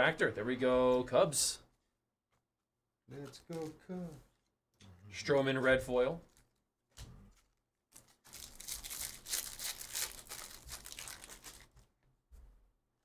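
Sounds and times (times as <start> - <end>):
cards and packaging rustling: 3.2 - 4.3, 6.3 - 11.9.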